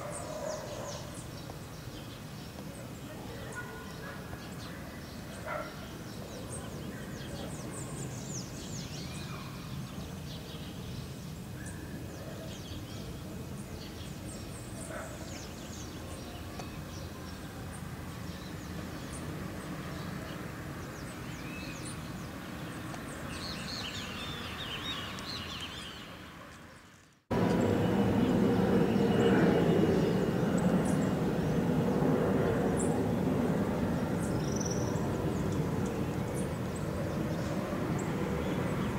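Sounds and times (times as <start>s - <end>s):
birds chirping: 0.0s - 38.9s
jet engines rumbling: 27.3s - 38.9s.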